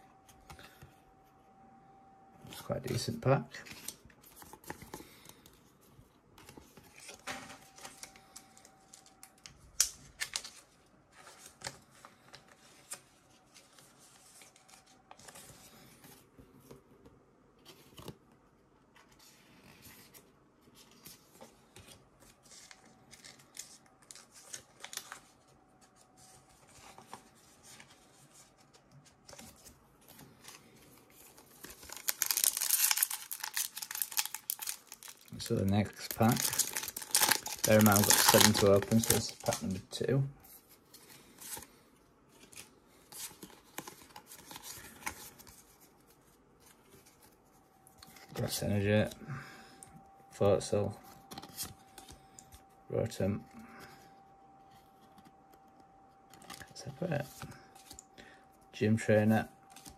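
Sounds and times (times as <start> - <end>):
foil wrapper crinkling: 31.4 - 39.8.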